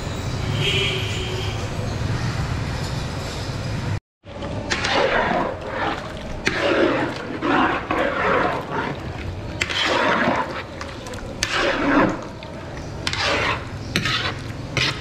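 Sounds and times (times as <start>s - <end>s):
liquid sloshing and splashing: 4.2s - 15.0s
ladle stirring broth: 4.3s - 15.0s.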